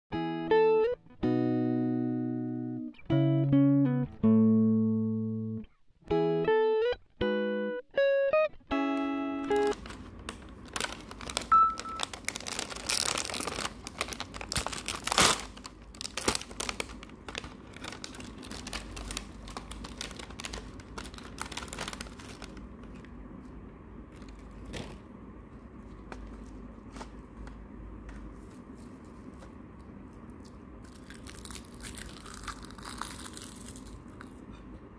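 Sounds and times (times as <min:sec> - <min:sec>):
plastic snack packet crinkling: 0:09.4 - 0:23.5, 0:24.1 - 0:25.0, 0:30.1 - 0:34.4.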